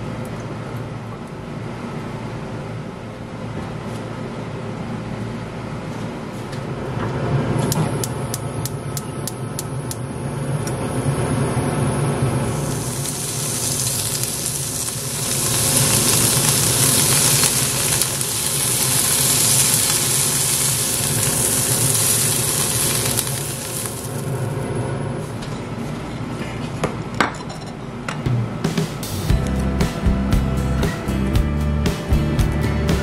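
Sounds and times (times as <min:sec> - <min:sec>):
beef sizzling in frying pan: 0:12.5 - 0:24.6.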